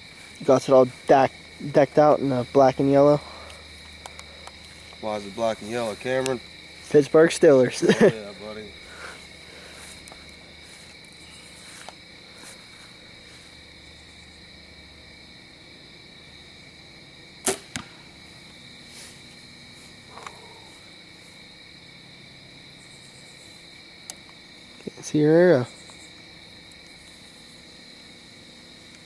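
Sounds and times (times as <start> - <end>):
crickets chirring: 0.0 - 29.0
arrow thud into target: 17.4 - 18.0
bowstring snap: 17.4 - 18.0.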